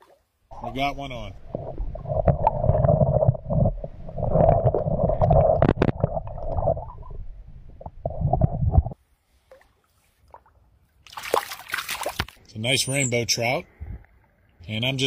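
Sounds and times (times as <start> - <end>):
muffled underwater stream rumbling: 0.5 - 9.0.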